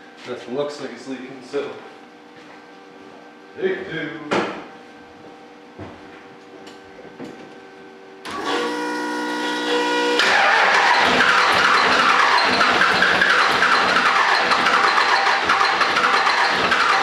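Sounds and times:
diesel engine running loudly: 8.3s - 17.0s
starter motor cranking: 9.5s - 17.0s.

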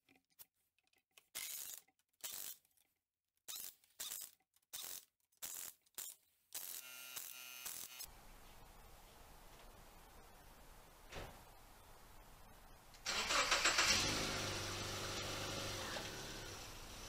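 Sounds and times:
pneumatic wrench spinning lug nuts: 1.4s - 2.6s, 3.5s - 8.1s.

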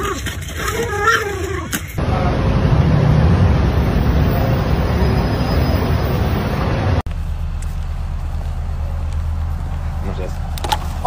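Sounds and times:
low road rumble: 0.0s - 11.0s
street traffic rumbling hiss: 2.0s - 11.0s.

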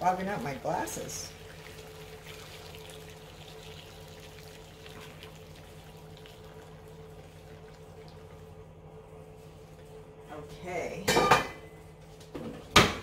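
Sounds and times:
water pouring and splashing: 0.0s - 8.6s.

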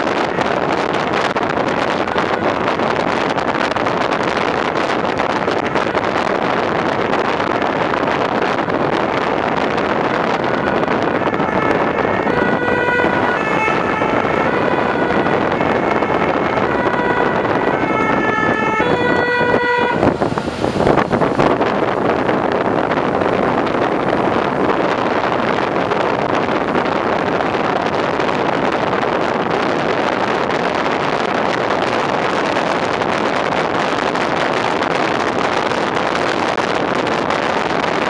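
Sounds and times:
fire engine road noise: 0.0s - 38.0s
wind rushing over microphone: 0.0s - 38.0s
two-tone emergency horn: 1.7s - 2.9s, 10.2s - 20.1s.

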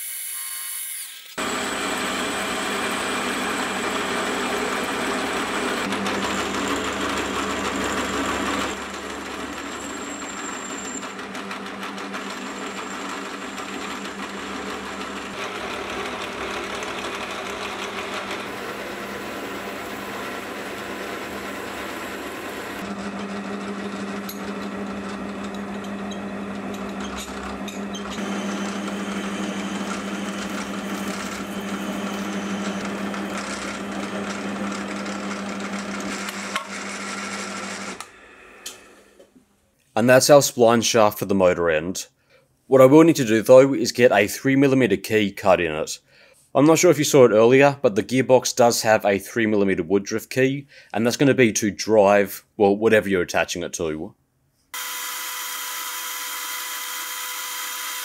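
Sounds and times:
metal lathe cutting metal: 0.0s - 38.8s, 54.8s - 58.0s.

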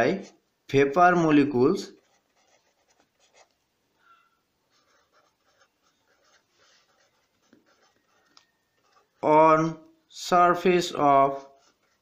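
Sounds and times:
marker pen scratching on paper: 1.9s - 3.6s, 4.7s - 9.3s, 11.2s - 12.0s.

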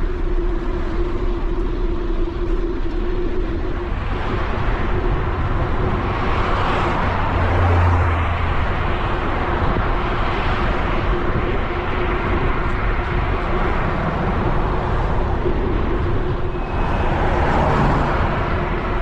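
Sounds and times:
loud low drone: 0.0s - 19.0s
steady low hum: 0.0s - 19.0s
tyre and road noise: 0.0s - 19.0s
wind rushing over microphone: 0.0s - 19.0s.

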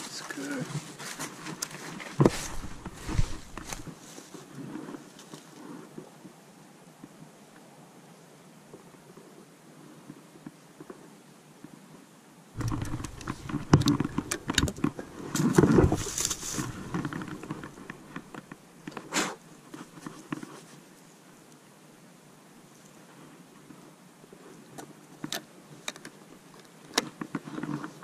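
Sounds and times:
clothing and dry leaves rustling: 0.0s - 6.0s, 12.6s - 21.2s
shotgun action clicks and knocks: 12.6s - 19.0s.

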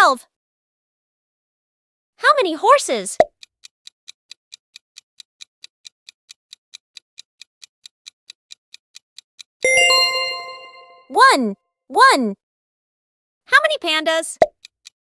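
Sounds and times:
clock ticking: 3.2s - 11.4s, 14.4s - 15.0s
ringing chime: 9.7s - 11.1s.

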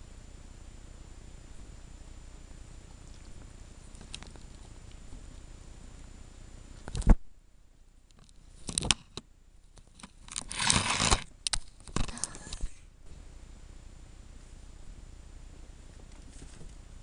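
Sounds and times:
rustling scrape: 10.3s - 11.2s, 16.1s - 16.8s.

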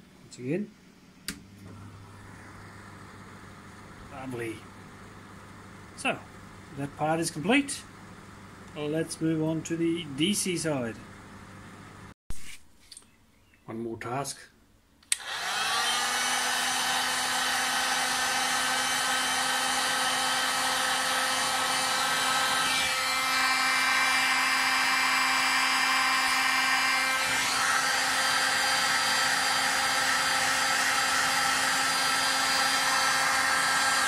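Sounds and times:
heat gun fan humming: 15.0s - 34.0s.

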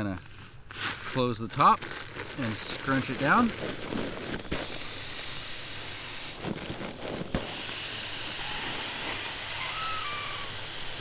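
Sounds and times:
air hissing from pump sack: 2.9s - 11.0s.

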